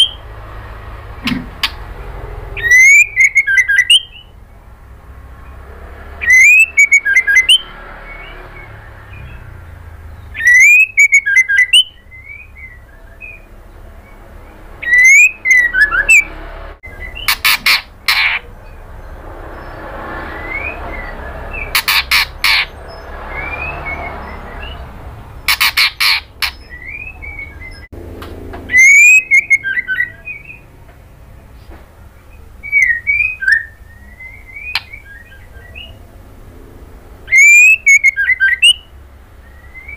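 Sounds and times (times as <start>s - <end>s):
bird whistling calls: 0.0s - 0.3s, 2.5s - 4.4s, 6.2s - 18.8s, 19.6s - 27.9s, 28.7s - 30.7s, 32.3s - 36.0s, 37.3s - 39.9s.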